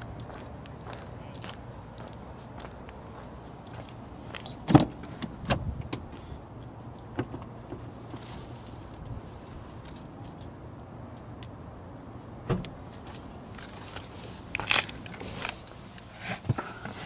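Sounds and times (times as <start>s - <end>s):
car keys jingling: 12.8s - 15.8s.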